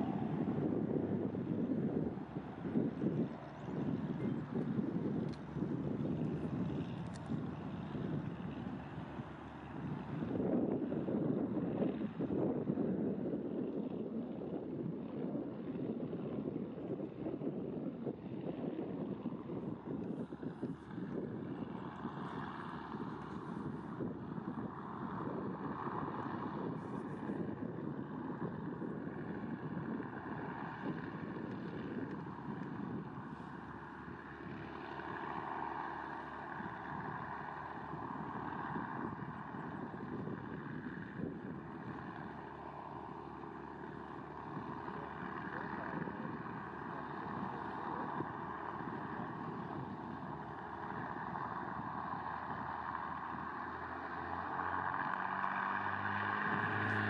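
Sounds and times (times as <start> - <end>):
propeller aircraft engines droning: 0.0 - 57.0.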